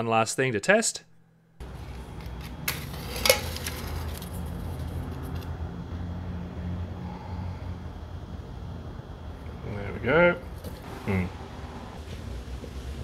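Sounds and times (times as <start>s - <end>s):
low outdoor background hum: 0.0s - 13.0s.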